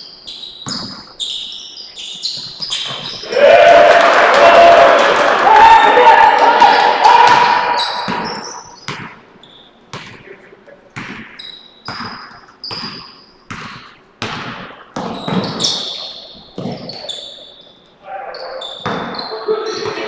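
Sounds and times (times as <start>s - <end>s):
sneakers squeaking on court: 0.0s - 3.3s, 7.3s - 20.0s
basketball bouncing on gym floor: 0.6s - 1.2s, 2.2s - 3.2s, 7.2s - 9.2s, 9.9s - 17.3s, 18.6s - 20.0s.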